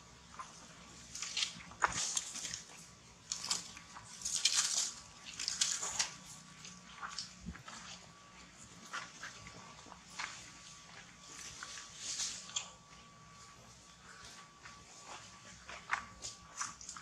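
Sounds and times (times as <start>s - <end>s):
monkeys scrambling over dry leaves: 0.5s - 17.0s.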